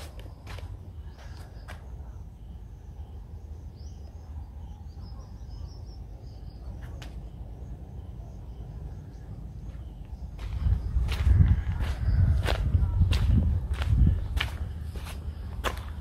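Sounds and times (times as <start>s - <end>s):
faint high chirping: 1.0s - 13.0s
low rumble: 7.2s - 16.0s.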